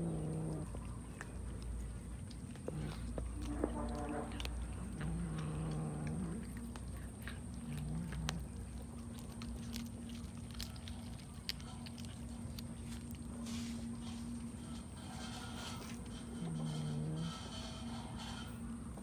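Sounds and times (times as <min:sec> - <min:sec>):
cat crunching raw fish: 0:00.0 - 0:19.0.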